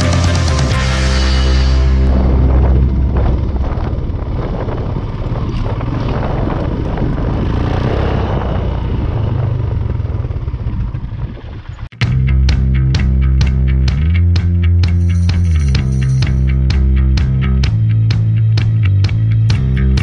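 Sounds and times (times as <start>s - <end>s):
rush of noise: 0.0s - 12.0s
motorcycle engine running: 0.0s - 20.0s.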